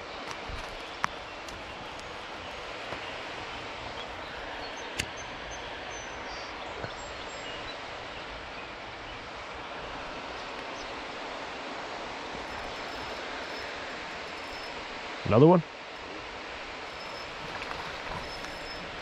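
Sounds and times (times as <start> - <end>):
rushing ambient hiss: 0.0 - 19.0
faint high chirps: 12.4 - 14.8, 16.9 - 19.0.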